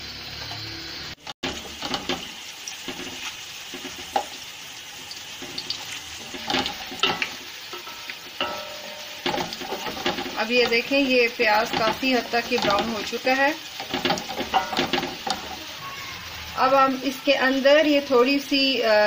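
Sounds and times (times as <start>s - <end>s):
onions sizzling in oil: 0.0s - 19.0s
wooden spoon knocking pot: 6.2s - 13.1s, 13.8s - 15.6s.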